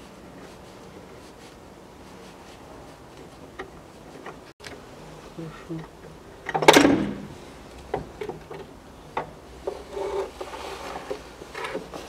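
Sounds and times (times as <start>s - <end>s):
clicks knocks and scraping: 6.5s - 12.0s.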